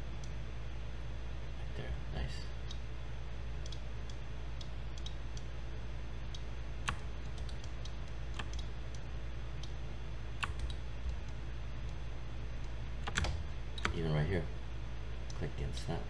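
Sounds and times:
steady low hum: 0:00.0 - 0:16.0
keyboard key presses: 0:10.4 - 0:11.4, 0:13.0 - 0:14.0.

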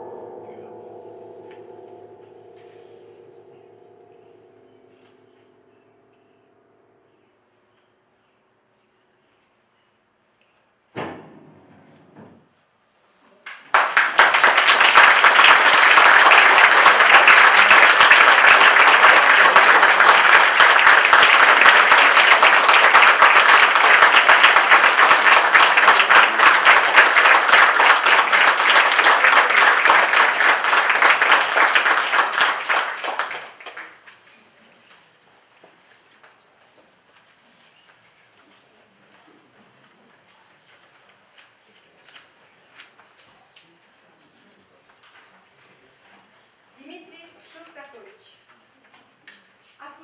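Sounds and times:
audience applauding: 0:13.4 - 0:34.2.

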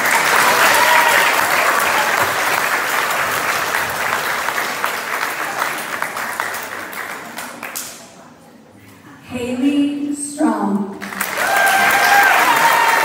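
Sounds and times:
audience applauding: 0:00.0 - 0:07.9, 0:11.0 - 0:13.0.

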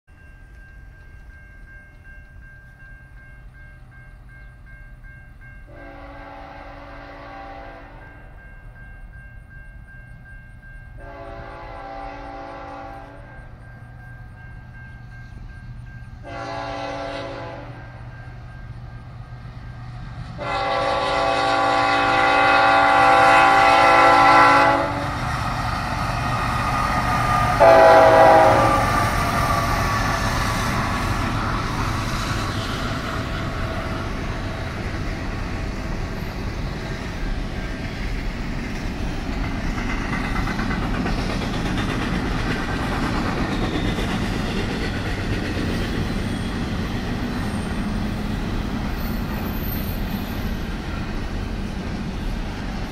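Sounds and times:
train cars rumbling and clattering: 0:00.1 - 0:52.9
locomotive air horn blasts: 0:05.7 - 0:08.2, 0:11.0 - 0:13.4, 0:16.2 - 0:17.9, 0:20.4 - 0:25.2, 0:27.5 - 0:29.2.

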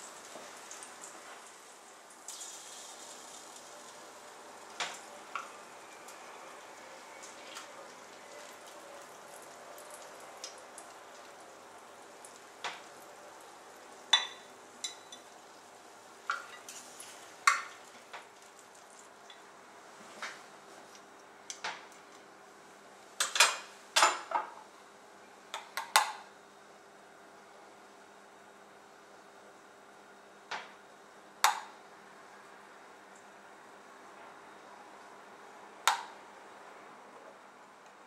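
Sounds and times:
ribs sizzling faintly: 0:00.0 - 0:23.1.

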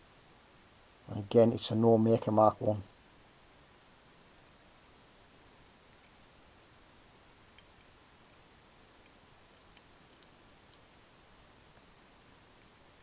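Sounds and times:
light clicks of metal buckle: 0:07.5 - 0:10.9.

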